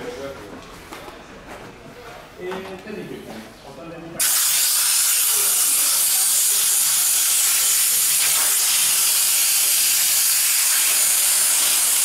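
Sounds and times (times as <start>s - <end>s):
compressed air blow gun hissing: 4.2s - 12.0s.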